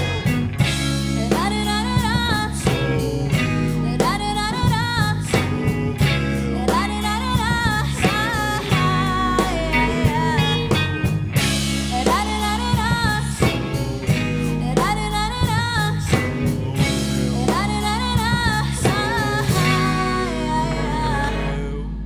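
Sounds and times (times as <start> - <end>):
bass and guitar: 0.0 - 22.0
wavering melodic lead line: 0.0 - 22.0.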